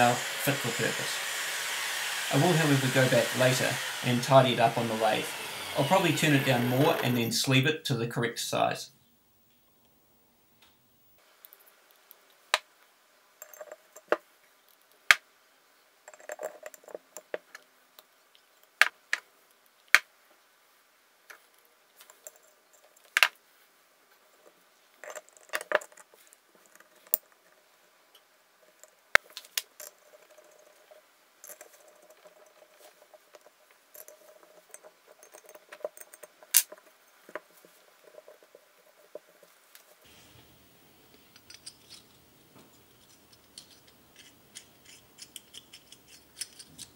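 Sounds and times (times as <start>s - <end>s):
metal parts clicking and knocking: 16.1s - 17.6s, 28.7s - 39.5s, 41.1s - 46.9s.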